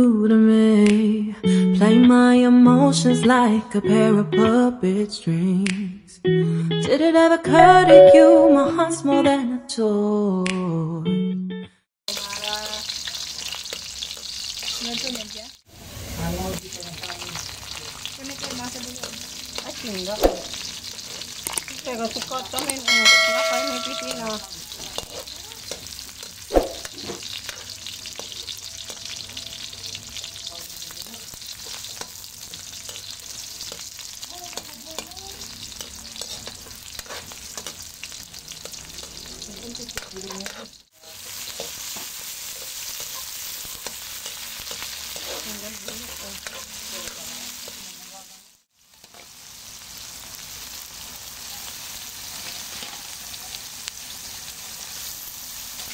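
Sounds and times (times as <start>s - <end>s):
short chime: 7.6s - 8.8s, 22.9s - 24.4s
onion and garlic sizzling in oil: 12.1s - 55.9s
spatula scraping a wok: 15.8s - 22.6s, 23.3s - 29.3s, 30.4s - 48.4s.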